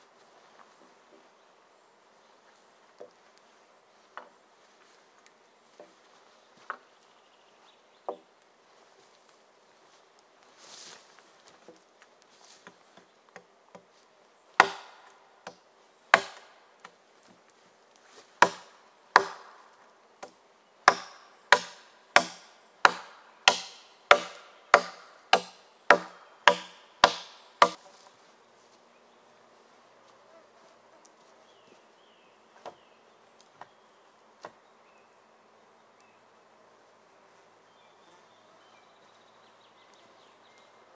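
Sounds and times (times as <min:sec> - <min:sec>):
axe chopping wood: 0:14.6 - 0:16.5, 0:18.4 - 0:19.6, 0:20.8 - 0:27.8
faint insect buzz: 0:23.8 - 0:40.9.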